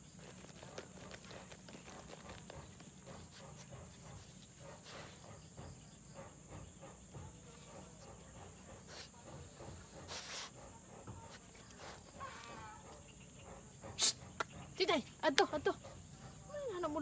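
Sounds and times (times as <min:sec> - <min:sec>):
dog digging in soil: 0:00.0 - 0:05.8, 0:08.6 - 0:14.8
crickets chirping: 0:00.0 - 0:17.0.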